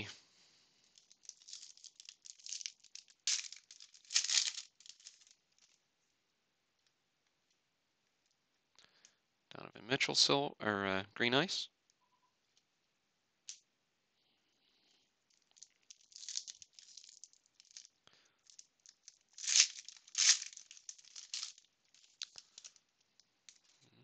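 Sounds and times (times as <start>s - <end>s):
foil wrapper tearing and crinkling: 0.9s - 5.6s, 15.3s - 22.8s.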